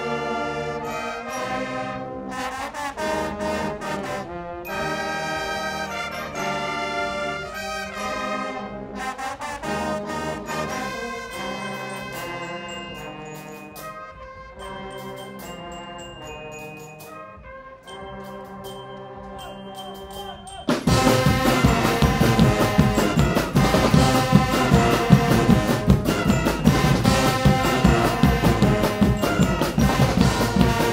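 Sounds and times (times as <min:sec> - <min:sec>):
brass band playing chords: 0:00.0 - 0:30.9
drum hits: 0:20.7 - 0:30.9.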